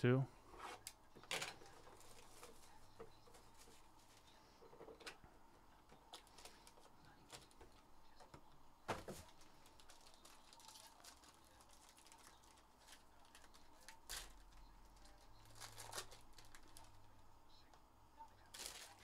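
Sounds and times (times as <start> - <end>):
foil pack crinkling: 9.2 - 17.1, 18.4 - 19.0.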